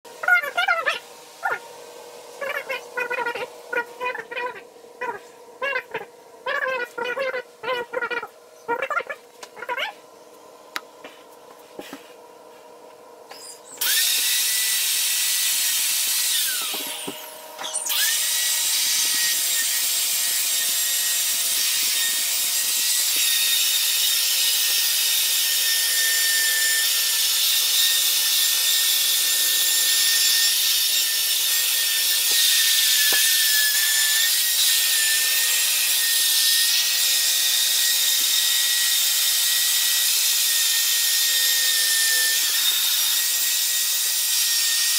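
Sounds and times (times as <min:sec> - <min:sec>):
electric drill motor whine: 0:13.1 - 0:44.9.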